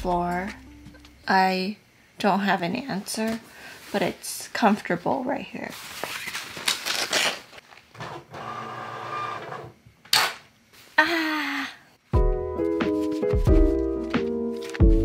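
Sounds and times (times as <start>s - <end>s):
soft background music: 0.0s - 1.7s, 12.1s - 15.0s.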